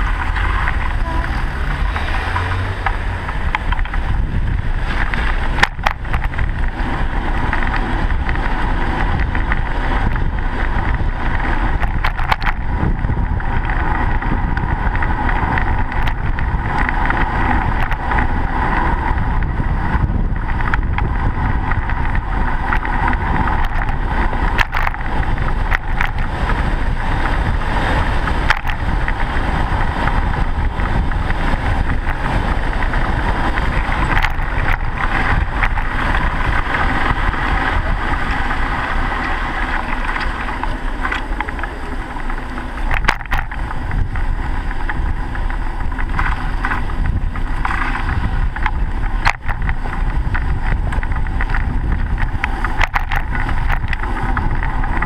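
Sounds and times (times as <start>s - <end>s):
bicycle road rumble: 0.0s - 55.0s
wind: 0.0s - 55.0s.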